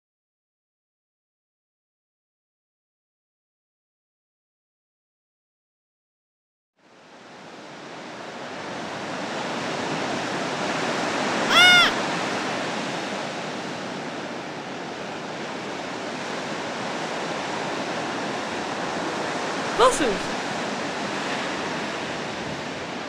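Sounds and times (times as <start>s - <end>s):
gull cry: 11.5s - 12.1s.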